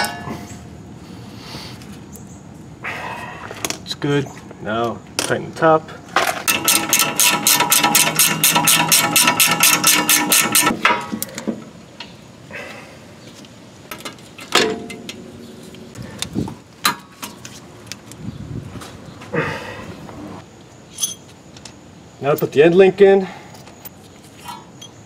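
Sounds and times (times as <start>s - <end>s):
hand tools clinking: 6.2s - 11.0s, 20.9s - 21.4s
ratchet wrench clicking: 6.5s - 10.7s.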